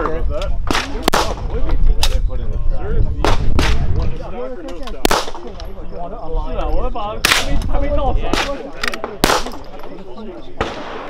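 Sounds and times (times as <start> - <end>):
voices talking: 0.0 - 11.0
gunshots: 0.6 - 1.5, 3.2 - 4.0, 5.0 - 5.6, 7.2 - 7.6, 8.3 - 9.8, 10.6 - 11.0.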